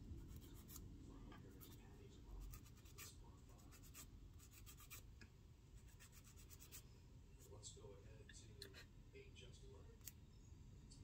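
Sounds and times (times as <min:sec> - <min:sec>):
nail buffer scratching fingernail: 0:02.4 - 0:05.1, 0:05.8 - 0:06.8.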